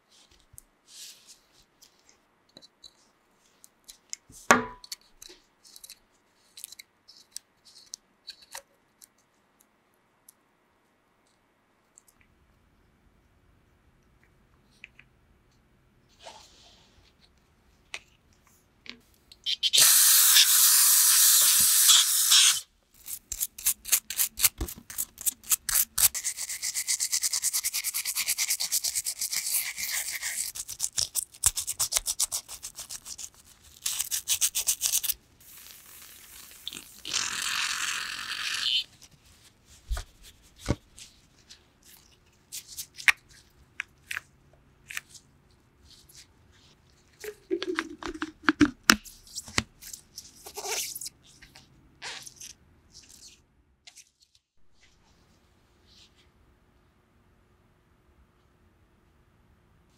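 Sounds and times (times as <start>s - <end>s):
toothbrush scrubbing plastic cap: 23.0s - 37.1s, 47.2s - 49.6s.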